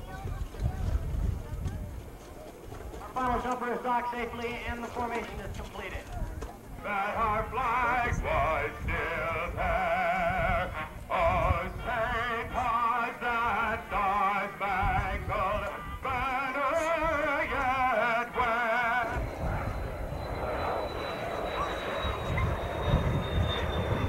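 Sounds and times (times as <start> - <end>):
singing voice with vibrato: 6.8 - 19.7.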